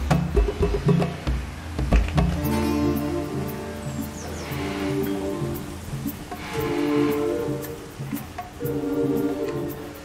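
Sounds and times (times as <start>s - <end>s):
steady low beat: 0.0s - 10.0s
held synth chord: 2.4s - 8.0s.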